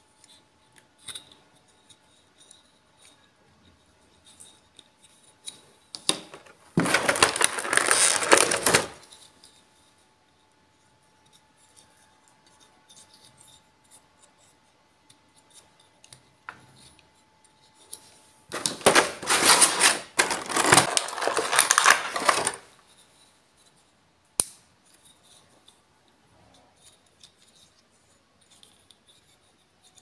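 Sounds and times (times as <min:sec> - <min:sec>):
plastic blister tray crackling: 0:06.1 - 0:09.0, 0:18.5 - 0:22.7.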